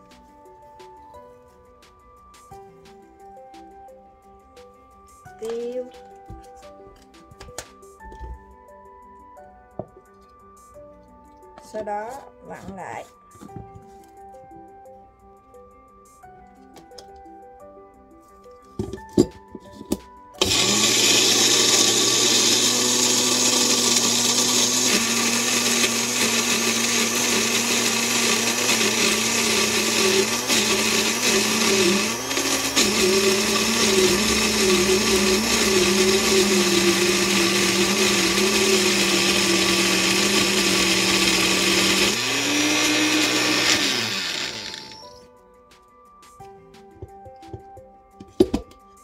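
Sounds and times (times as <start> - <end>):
blender motor grinding: 20.4 - 45.2.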